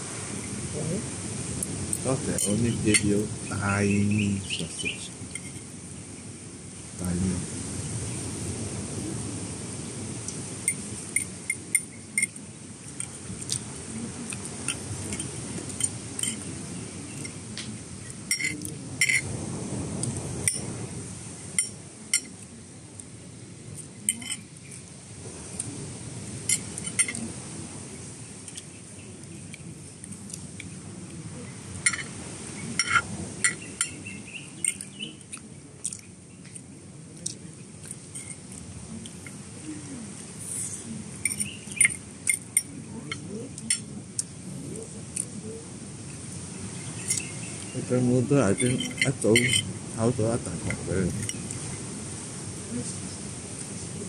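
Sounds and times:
low background noise: 0:00.0 - 0:54.0
cutlery clinking on plates: 0:02.4 - 0:03.1, 0:18.3 - 0:19.3, 0:24.1 - 0:24.5, 0:26.5 - 0:27.3, 0:31.8 - 0:32.1, 0:32.8 - 0:34.0, 0:41.2 - 0:43.9, 0:48.6 - 0:49.7.

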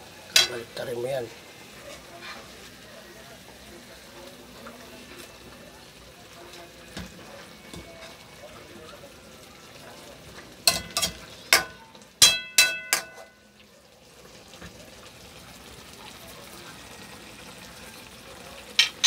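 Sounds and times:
sauce sizzling in pan: 0:00.0 - 0:19.0
metal spoon knocking on pan: 0:10.6 - 0:13.4, 0:18.8 - 0:19.0.

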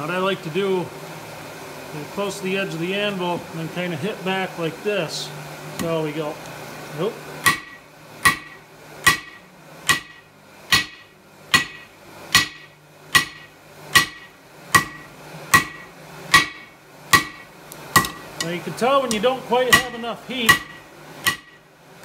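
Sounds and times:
hammer striking steel on anvil: 0:07.4 - 0:18.3, 0:19.1 - 0:21.6.

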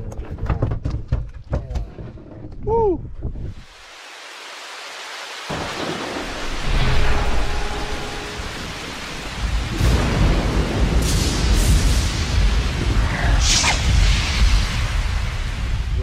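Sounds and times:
wind buffeting microphone: 0:02.2 - 0:03.7
rain: 0:03.5 - 0:16.0.

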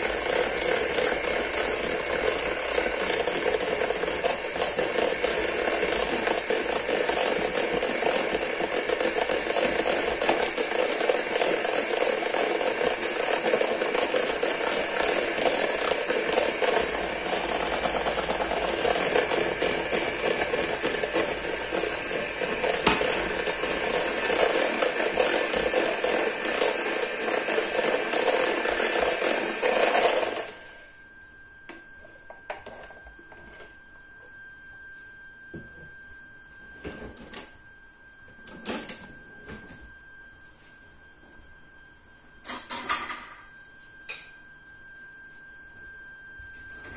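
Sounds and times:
electric hand mixer whisking batter: 0:00.0 - 0:31.0.

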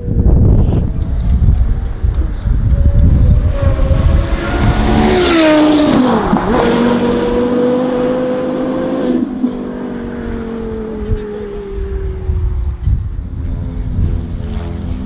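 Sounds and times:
high-pitched car engine revving: 0:02.7 - 0:11.9.

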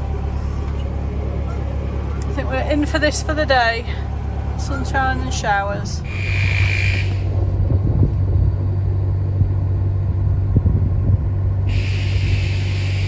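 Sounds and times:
diesel engine rumbling: 0:00.0 - 0:13.0
wind hiss: 0:06.0 - 0:13.0
wind thumps on microphone: 0:06.5 - 0:13.0.

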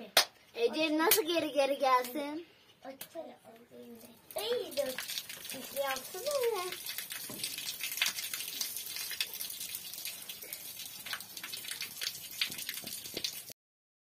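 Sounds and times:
cow urinating onto concrete floor: 0:03.9 - 0:13.6.

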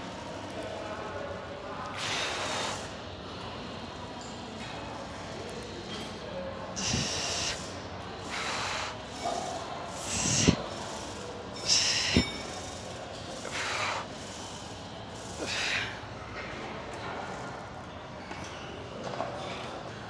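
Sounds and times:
woman's hissing breaths: 0:06.8 - 0:07.7, 0:08.3 - 0:09.0, 0:10.0 - 0:10.7, 0:11.6 - 0:12.3, 0:15.3 - 0:16.0.

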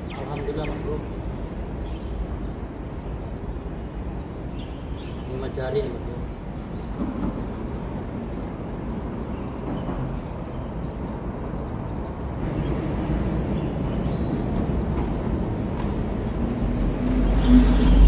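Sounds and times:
traffic rumble on bridge overhead: 0:00.0 - 0:18.0
vehicle passing: 0:12.4 - 0:18.0.

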